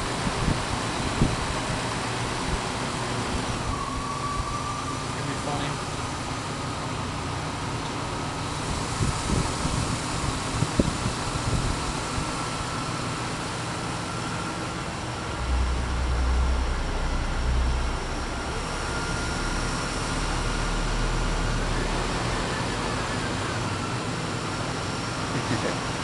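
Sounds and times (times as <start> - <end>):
deep bass from subwoofers: 15.0 - 23.1.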